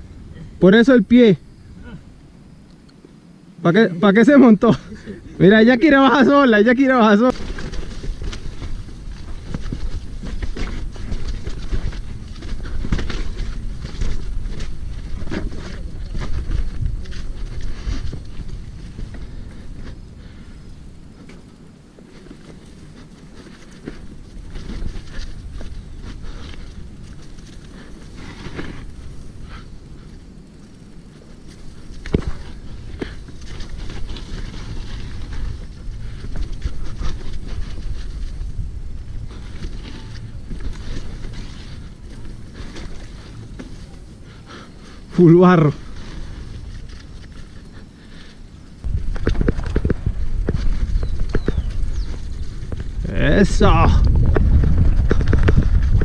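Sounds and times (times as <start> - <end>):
tyres rumbling on dirt: 3.7 - 56.0
bike rattling and knocking: 7.2 - 20.3, 21.2 - 29.6, 31.1 - 47.8, 48.9 - 56.0
wind on microphone: 7.3 - 30.5, 31.4 - 45.2, 45.8 - 56.0.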